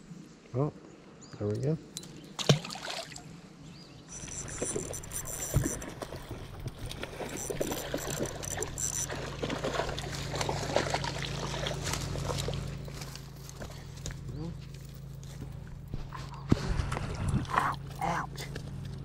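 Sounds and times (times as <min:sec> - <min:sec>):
fish splashing in water: 0:02.4 - 0:03.3, 0:04.3 - 0:12.8
high whine: 0:04.1 - 0:09.2.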